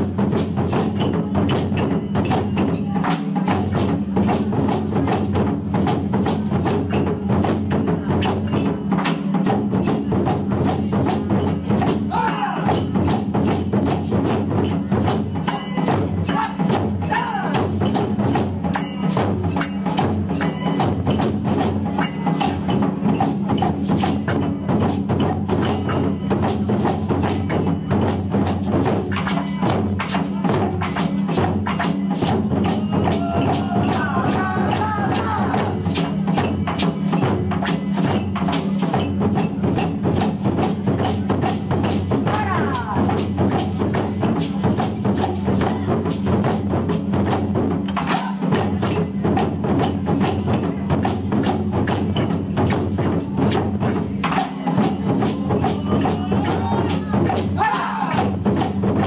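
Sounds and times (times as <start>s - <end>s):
taiko drums beating: 0.0s - 59.0s.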